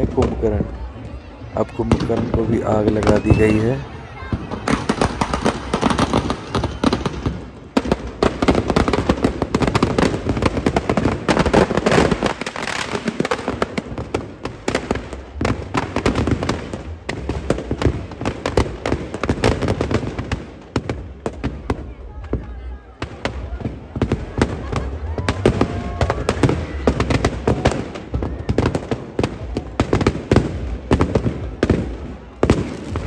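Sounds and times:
firecrackers crackling: 0:00.0 - 0:33.0.

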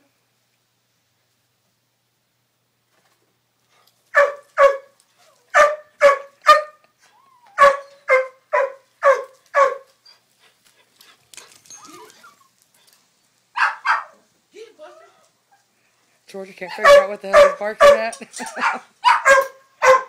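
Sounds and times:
dog barking: 0:04.1 - 0:06.8, 0:07.6 - 0:09.9, 0:13.6 - 0:14.2, 0:16.7 - 0:20.0.

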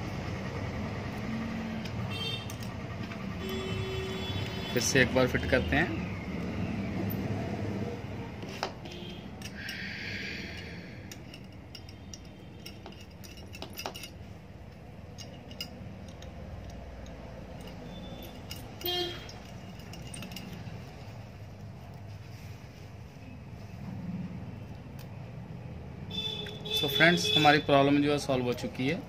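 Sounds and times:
metal washers and nuts clinking: 0:01.1 - 0:06.0, 0:08.1 - 0:22.8, 0:26.1 - 0:29.0.

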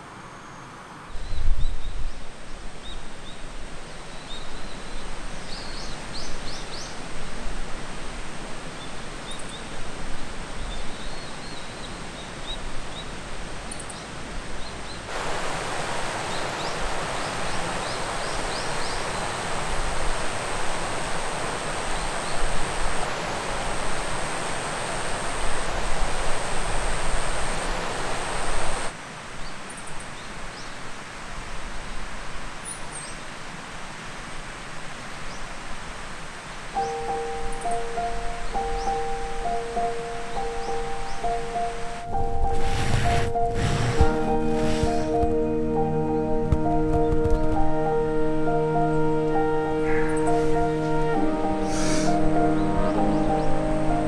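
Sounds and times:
river rushing over rocks: 0:01.2 - 0:54.0
bird chirps: 0:36.8 - 0:45.2, 0:49.7 - 0:53.8.

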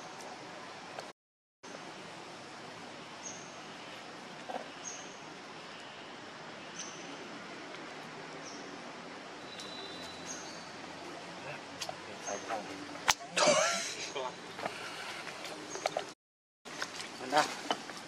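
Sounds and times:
steady forest hiss: 0:01.7 - 0:15.8
short high bird chirp: 0:09.5 - 0:10.6.

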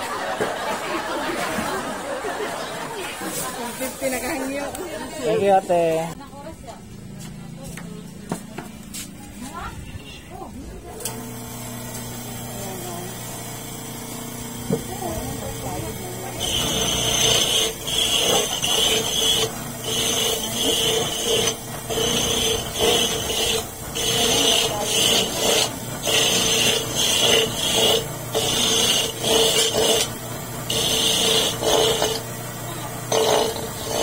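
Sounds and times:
electric coconut grater rasping: 0:11.0 - 0:34.0.

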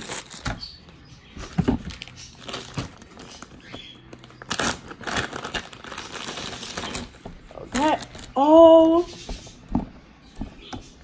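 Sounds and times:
plastic crinkling: 0:00.0 - 0:00.8, 0:01.4 - 0:09.1.

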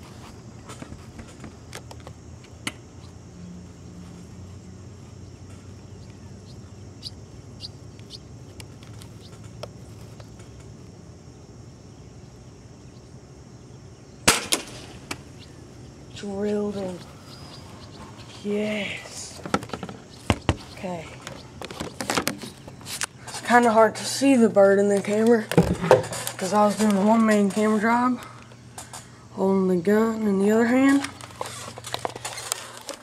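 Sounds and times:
steady low hum: 0:00.0 - 0:33.0
air rifle shot: 0:14.2 - 0:15.2
sharp crack: 0:14.2 - 0:15.4.

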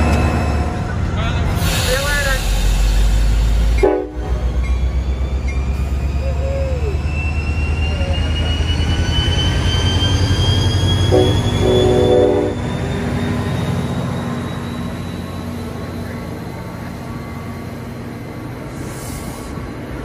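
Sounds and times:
diesel locomotive passing: 0:00.0 - 0:20.0
train horn blast: 0:03.8 - 0:04.4, 0:11.1 - 0:12.6.

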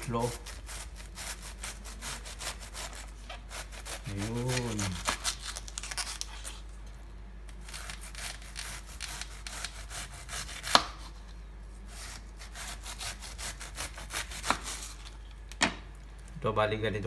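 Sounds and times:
knife slicing cabbage: 0:00.0 - 0:06.6, 0:07.6 - 0:11.2, 0:11.8 - 0:15.1.

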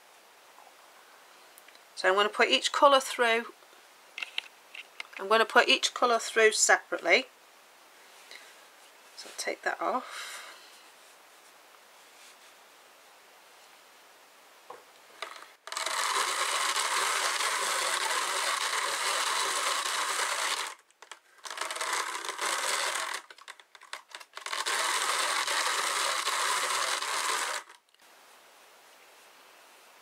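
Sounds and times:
hand-cranked drum carder whirring: 0:15.2 - 0:27.8.

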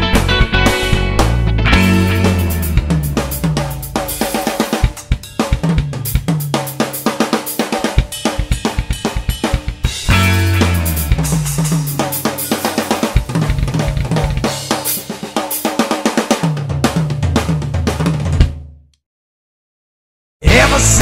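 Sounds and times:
low bass line: 0:00.0 - 0:04.4, 0:10.0 - 0:14.5
drum kit playing a busy beat: 0:00.0 - 0:18.6, 0:20.4 - 0:21.0.

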